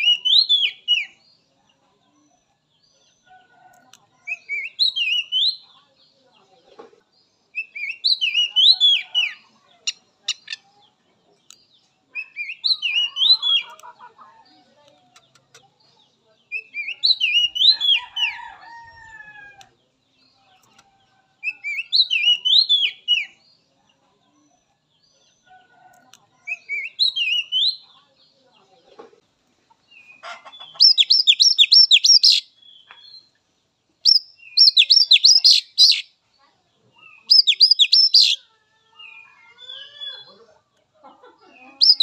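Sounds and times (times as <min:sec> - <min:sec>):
bird singing whistled phrase: 0:37.3 - 0:38.4.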